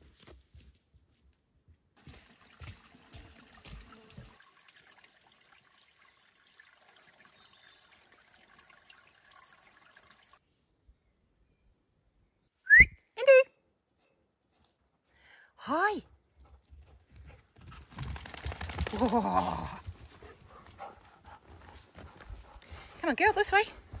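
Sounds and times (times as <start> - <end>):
stream trickling: 2.0 - 10.4.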